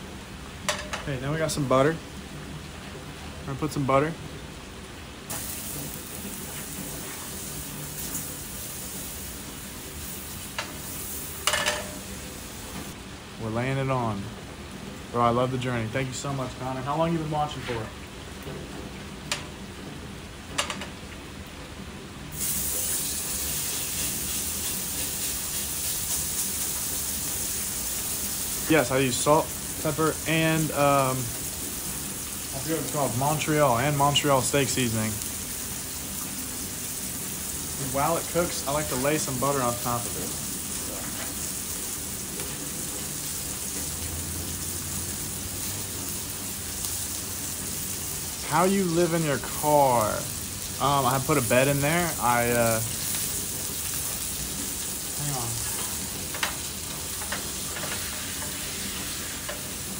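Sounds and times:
rain falling: 0:00.0 - 0:59.9
steak sizzling in a pan: 0:05.3 - 0:13.0, 0:22.3 - 0:59.9.

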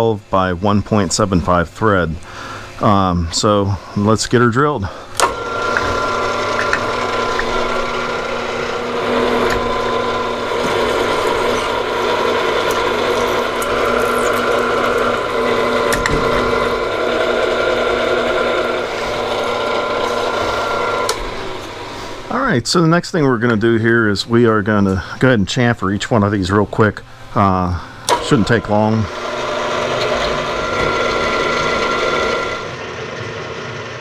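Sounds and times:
milling machine drilling steel: 0:00.0 - 0:22.4, 0:28.0 - 0:32.8.

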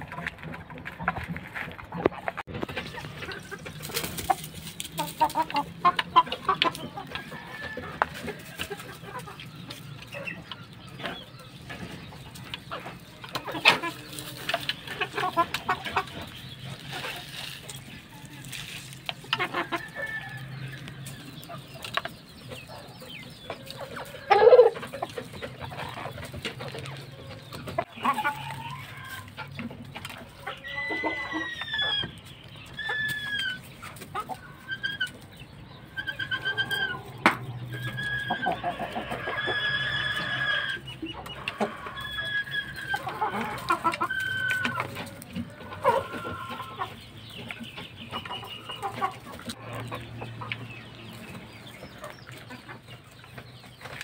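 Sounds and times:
chickens clucking: 0:00.0 - 0:54.0
chicken squawk: 0:22.8 - 0:27.0, 0:30.4 - 0:47.0.

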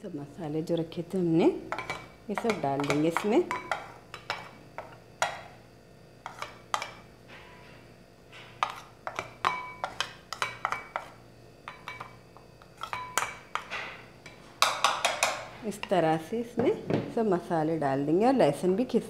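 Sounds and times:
steel spoon clinking against glass bowl: 0:11.7 - 0:12.2, 0:12.8 - 0:13.6.

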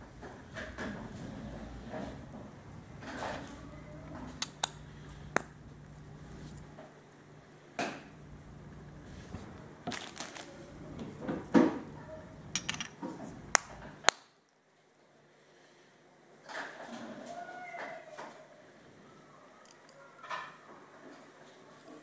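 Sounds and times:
metal watch case clicks and knocks: 0:12.6 - 0:13.0.

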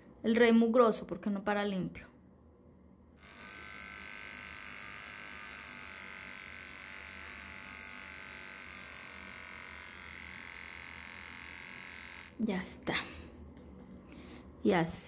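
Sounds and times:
electric hair clipper running: 0:03.2 - 0:12.4.

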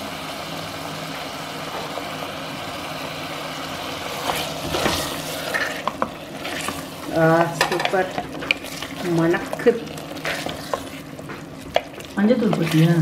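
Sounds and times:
chicken frying with hiss: 0:00.0 - 0:13.0
spatula scraping pan: 0:04.1 - 0:13.0.

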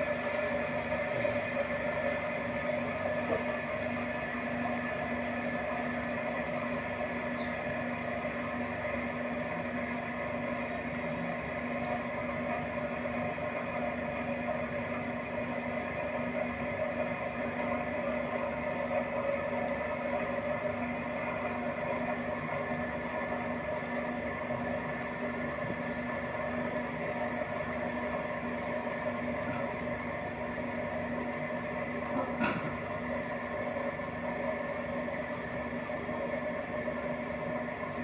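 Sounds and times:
potter's wheel motor humming: 0:00.0 - 0:38.0.

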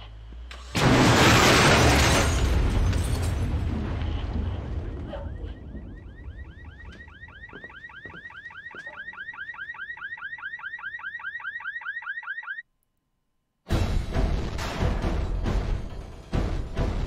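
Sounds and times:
car alarm chirping: 0:05.1 - 0:12.6
music: 0:13.7 - 0:17.0.

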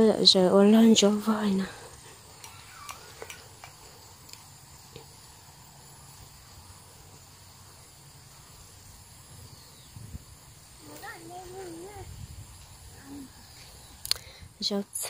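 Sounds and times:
high-pitched insect drone: 0:01.4 - 0:14.5.

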